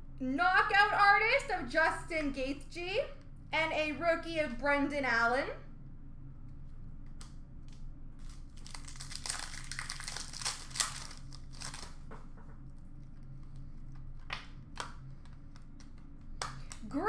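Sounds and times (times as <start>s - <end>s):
steady low hum: 0.0s - 17.0s
foil wrapper crinkling and tearing: 8.2s - 12.1s.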